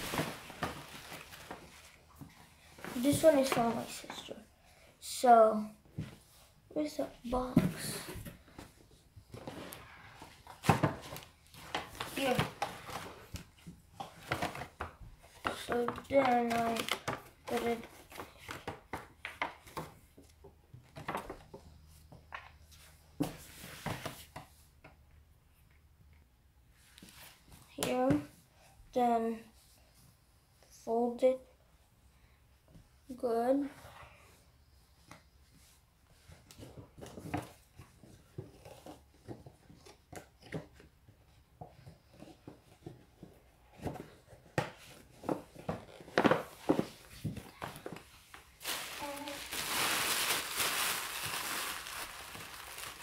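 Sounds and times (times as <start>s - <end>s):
paper bag rustling: 0.0s - 1.9s, 48.5s - 53.0s.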